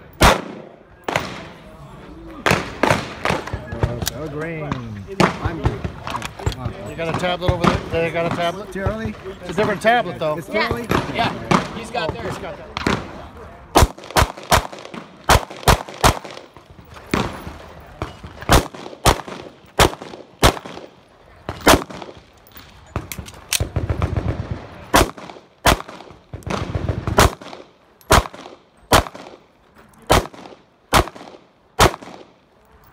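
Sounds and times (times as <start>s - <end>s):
pistol shots: 0.2s - 1.6s, 10.8s - 22.3s, 23.0s - 29.4s, 30.0s - 32.4s.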